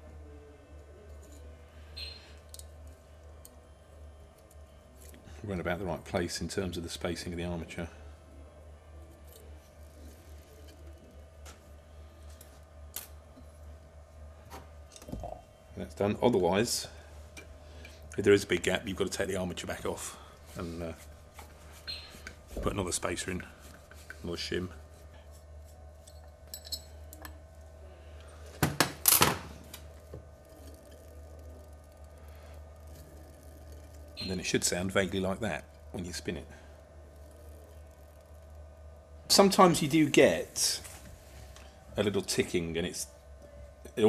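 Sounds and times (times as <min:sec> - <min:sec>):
low steady hum: 0:00.0 - 0:44.0
metal tool clinking: 0:26.0 - 0:27.4.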